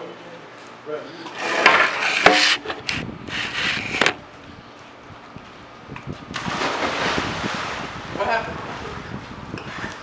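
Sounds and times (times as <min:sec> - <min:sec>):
camera knocking and scraping: 0:01.6 - 0:04.2
person splashing into pool: 0:06.3 - 0:07.9.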